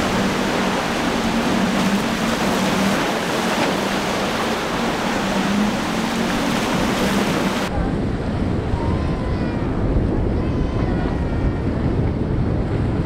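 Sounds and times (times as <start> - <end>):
hiss of spray and surf: 0.0 - 7.7
outboard motors droning: 0.0 - 13.0.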